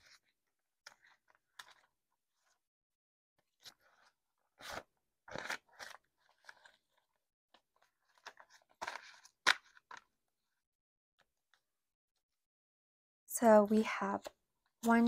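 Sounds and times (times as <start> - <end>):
paper money rustling and crinkling: 3.4 - 10.2.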